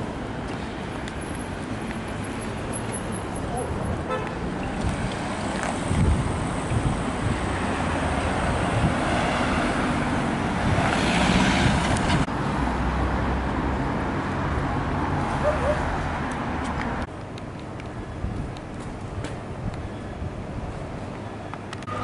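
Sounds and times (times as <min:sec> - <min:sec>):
cars driving past: 0:00.0 - 0:17.1.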